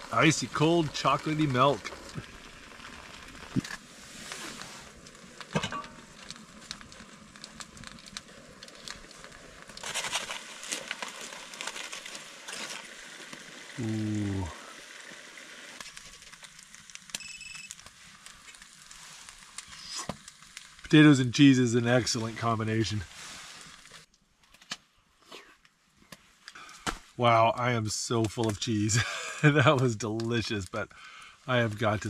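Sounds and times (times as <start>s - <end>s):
foil crinkling and scraping: 0.0s - 14.4s, 15.7s - 20.8s, 21.9s - 24.7s
food sizzling and crackling: 0.0s - 24.1s
person humming: 13.8s - 14.5s.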